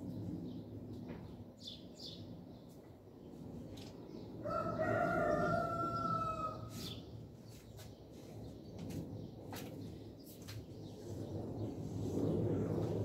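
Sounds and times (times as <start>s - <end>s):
small birds chirping: 0.0s - 12.3s
rooster crowing: 4.4s - 6.8s.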